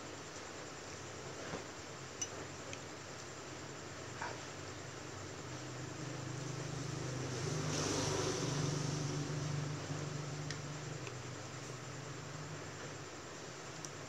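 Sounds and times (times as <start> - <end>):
vehicle engine passing: 6.2 - 10.9.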